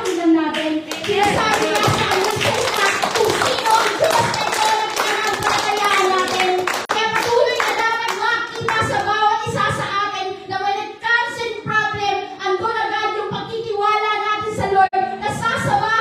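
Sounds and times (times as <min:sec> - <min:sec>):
hands clapping: 0:00.0 - 0:09.2.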